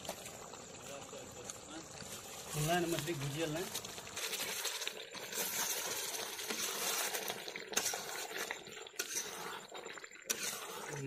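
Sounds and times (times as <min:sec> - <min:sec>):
chicken sizzling in pan: 0:00.0 - 0:11.0
spatula scraping pan: 0:04.2 - 0:11.0.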